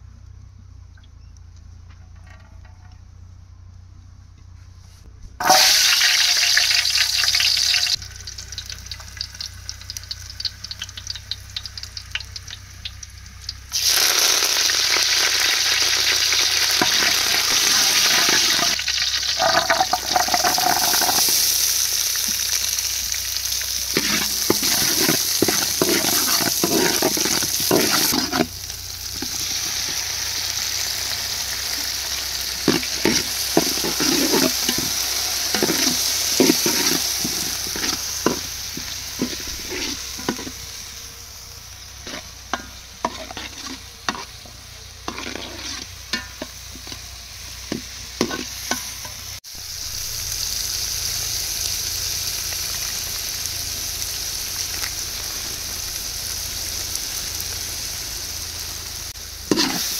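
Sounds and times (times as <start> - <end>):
meat sizzling in a pan: 5.4 - 59.9
utensil scraping a pan: 16.8 - 18.8, 19.4 - 21.4, 23.9 - 28.5, 29.2 - 30.0, 32.6 - 40.7, 42.0 - 47.0, 47.7 - 49.2, 59.5 - 59.9.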